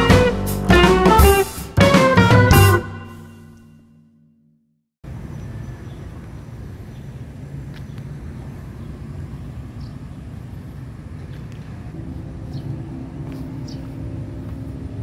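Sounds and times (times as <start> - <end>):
low outdoor rumble: 5.1 - 15.0.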